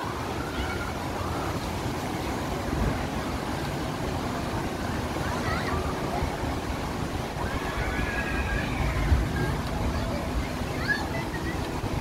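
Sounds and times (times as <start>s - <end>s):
water jets spraying: 0.0s - 12.0s.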